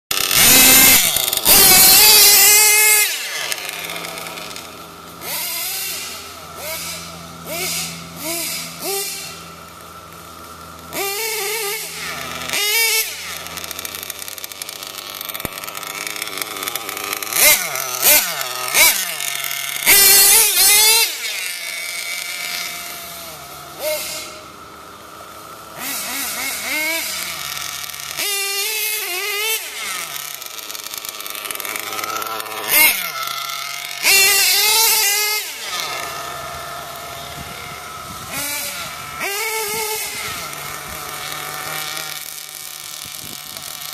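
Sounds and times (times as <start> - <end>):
rc truck engine revving: 0.1 - 43.9.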